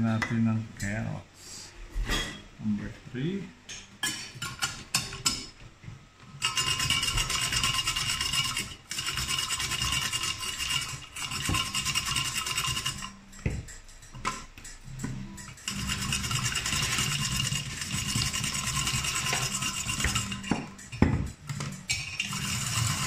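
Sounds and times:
grater rasping against carrot: 0:06.4 - 0:13.1, 0:15.6 - 0:20.5, 0:22.2 - 0:23.0.

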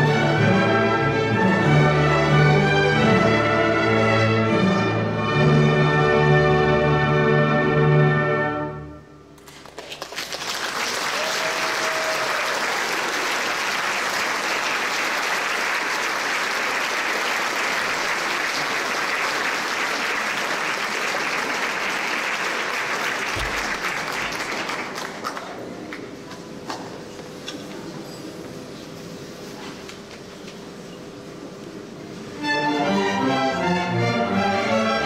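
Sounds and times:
audience applauding: 0:09.4 - 0:26.1.

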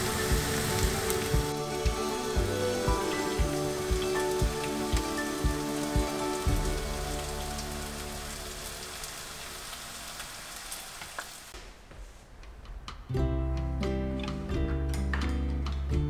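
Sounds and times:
soft music with light beat: 0:00.0 - 0:08.8, 0:11.6 - 0:16.0
oil sizzling in a frying pan: 0:00.0 - 0:11.6.

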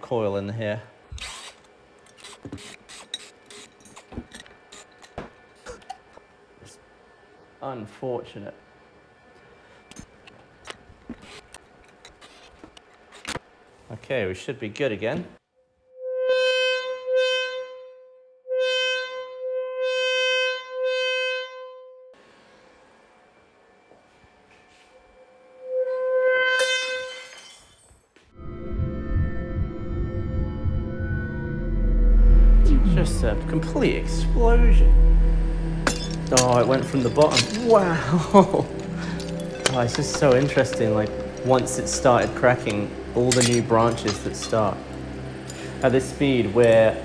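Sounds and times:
screwdriver and metal parts clicking: 0:01.1 - 0:05.2, 0:35.9 - 0:44.7.

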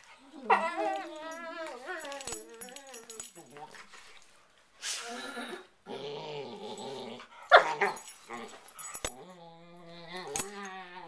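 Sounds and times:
dogs growling: 0:05.2 - 0:11.0.

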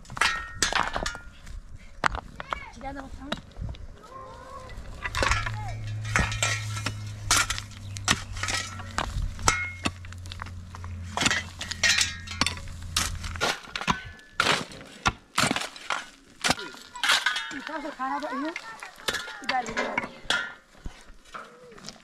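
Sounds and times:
metal pots and dishes clinking: 0:05.0 - 0:10.0, 0:11.0 - 0:14.6, 0:16.4 - 0:17.9, 0:19.1 - 0:20.7.

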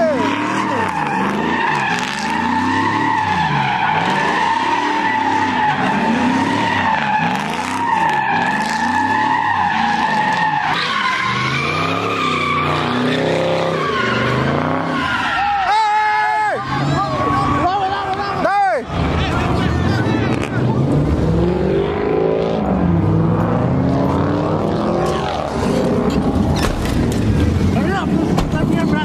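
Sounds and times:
engine revving: 0:00.0 - 0:15.1, 0:18.8 - 0:29.0
tyres squealing on pavement: 0:00.0 - 0:20.8.

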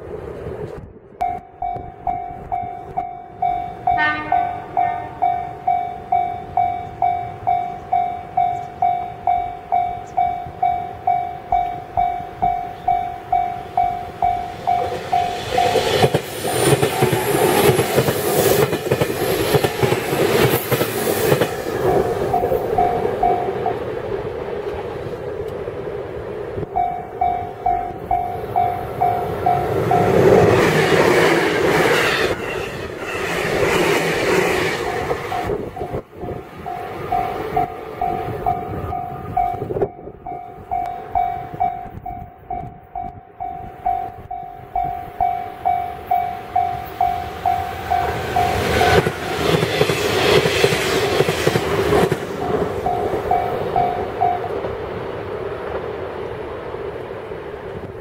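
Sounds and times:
train rumbling past: 0:00.0 - 0:58.0
level crossing warning bell: 0:01.2 - 0:16.2, 0:21.8 - 0:23.9, 0:26.7 - 0:30.6, 0:34.8 - 0:49.2, 0:52.4 - 0:54.6.

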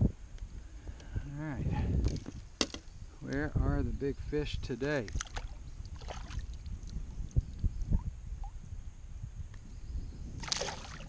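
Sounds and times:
fish splashing at water surface: 0:05.1 - 0:06.5, 0:10.4 - 0:11.0.

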